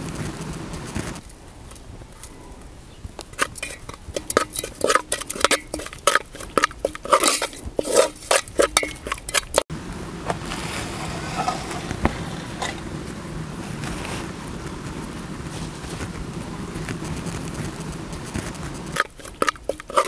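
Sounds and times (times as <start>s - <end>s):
soft steady stirring noise: 0.0s - 10.1s, 10.8s - 20.0s
metal spoon clinking in pot: 3.4s - 9.6s.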